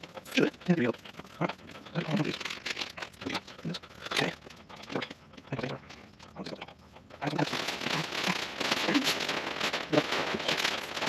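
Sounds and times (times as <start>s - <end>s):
nylon fabric rustling and crinkling: 0.0s - 5.0s, 7.2s - 11.0s.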